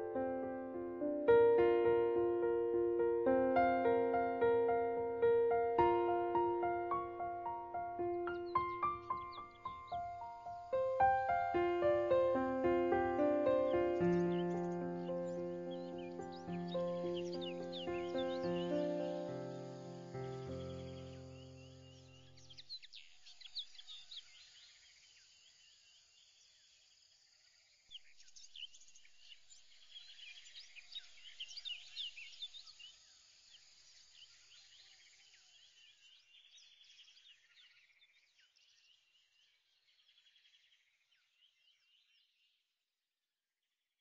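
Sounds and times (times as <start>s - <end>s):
high bird chirps: 5.9s - 24.2s.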